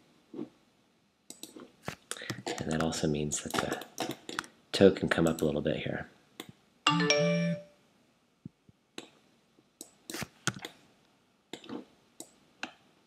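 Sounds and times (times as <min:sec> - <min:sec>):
computer mouse and keyboard clicks: 0:01.3 - 0:04.5, 0:09.8 - 0:10.8
two-part electronic chime: 0:06.9 - 0:07.7.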